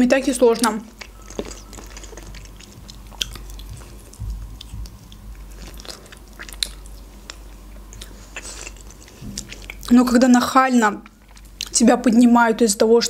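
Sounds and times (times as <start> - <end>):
chewing with wet mouth clicks: 0.4 - 10.0, 11.0 - 11.8.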